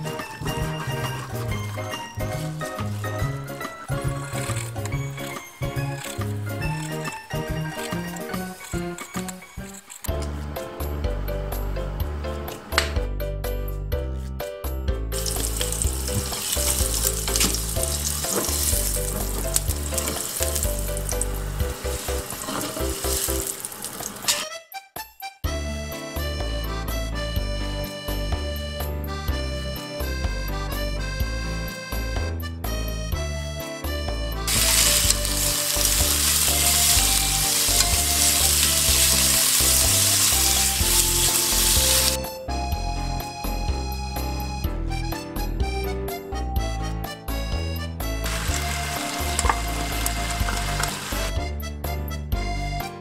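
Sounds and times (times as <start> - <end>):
background music: 0.0 - 53.0
chopsticks stirring: 0.4 - 10.0, 15.2 - 24.3, 34.5 - 42.2, 48.2 - 51.3
ginger sizzling in hot oil: 0.8 - 9.2, 15.2 - 24.4, 34.5 - 42.2, 48.2 - 51.3.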